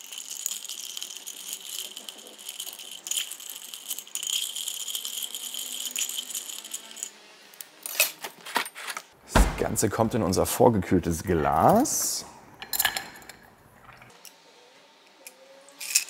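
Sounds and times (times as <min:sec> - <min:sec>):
ice cubes clinking in a glass: 0:00.0 - 0:07.1.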